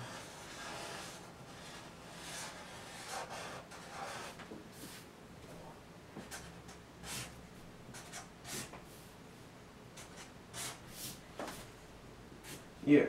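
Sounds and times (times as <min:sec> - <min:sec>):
marker scratching on paper: 0:00.0 - 0:05.0, 0:06.2 - 0:08.8, 0:10.0 - 0:11.6.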